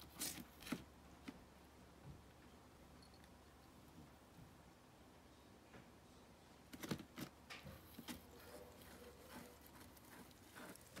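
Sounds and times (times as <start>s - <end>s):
cat chewing: 8.0s - 11.0s.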